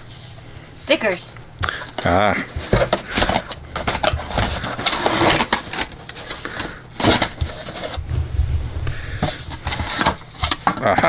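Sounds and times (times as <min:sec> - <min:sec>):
packaging rustling and crinkling: 0:01.7 - 0:08.1, 0:08.9 - 0:11.0.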